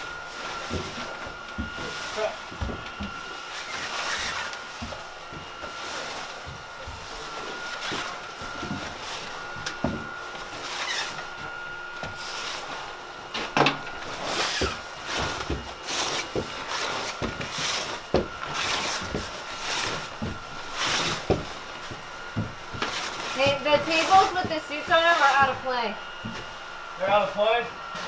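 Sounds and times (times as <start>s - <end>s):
hissing rustle of suits: 3.4s - 4.7s.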